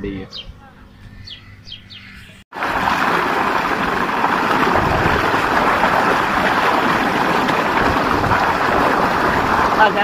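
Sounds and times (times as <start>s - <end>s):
water gushing into stone tank: 2.5s - 10.0s.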